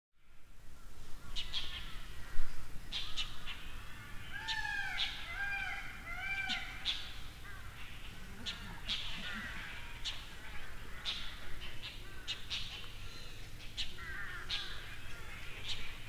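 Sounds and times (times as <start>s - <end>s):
bird calls: 0.8s - 16.0s.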